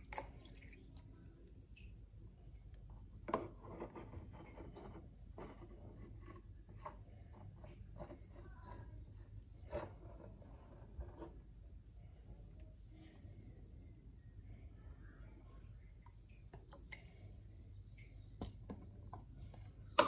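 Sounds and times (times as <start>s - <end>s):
light clicks and squishes: 0.0s - 3.3s, 15.8s - 20.0s.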